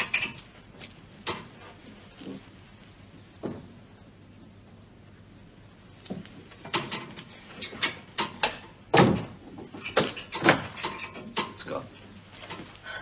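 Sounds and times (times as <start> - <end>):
door knocks and bangs: 8.9 - 9.4
heavy door thud: 8.9 - 9.4.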